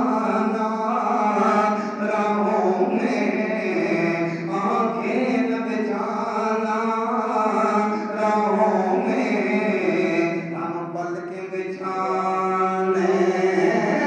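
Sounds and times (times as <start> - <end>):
man chanting: 0.0 - 14.0.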